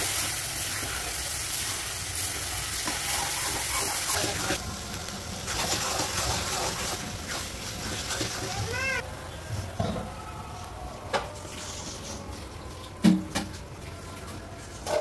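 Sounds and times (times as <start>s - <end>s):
fish and leaves sizzling in a wok: 0.0s - 9.0s.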